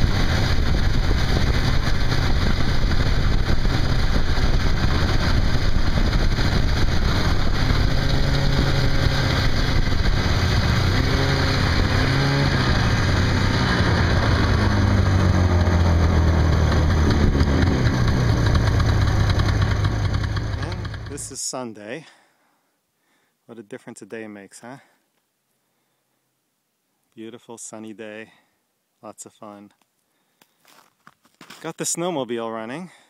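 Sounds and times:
wind blowing across microphone: 0.0 - 19.3.

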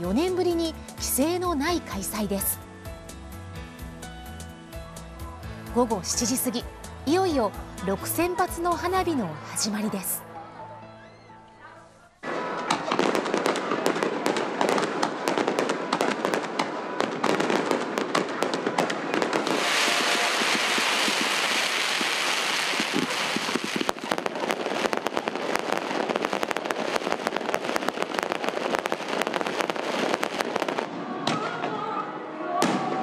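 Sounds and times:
fireworks crackling: 12.2 - 31.7
fireworks bursting with bangs: 12.2 - 31.8
fireworks hissing: 19.2 - 30.9.

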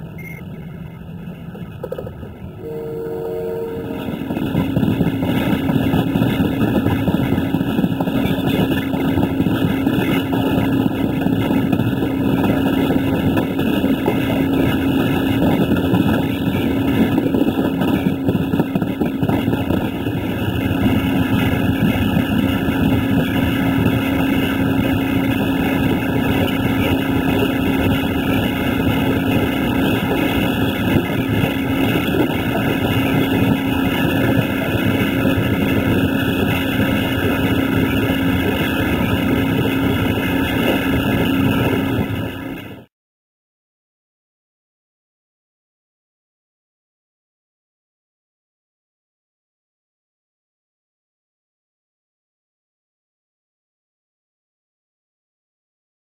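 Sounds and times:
low hum: 0.0 - 42.9
train running noise: 0.0 - 42.9
horn-like tone: 2.6 - 4.6.

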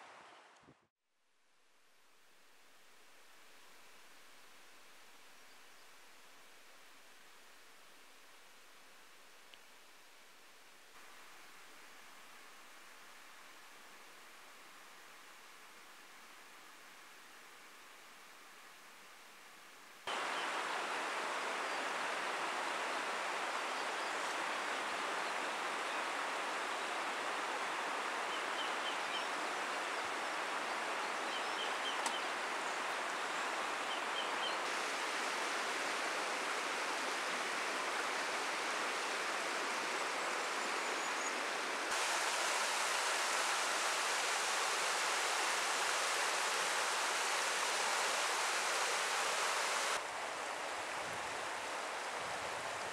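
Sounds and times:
river water rushing over gravel: 20.1 - 52.9.

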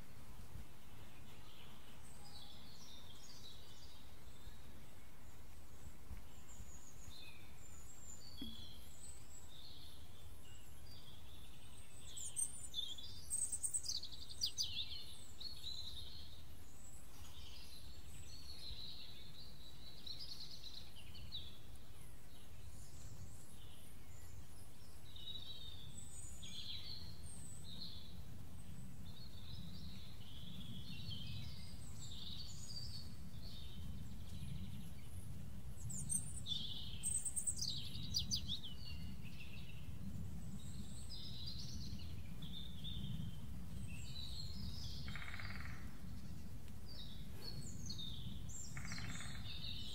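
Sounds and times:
birds chirping and calling: 47.0 - 49.9.

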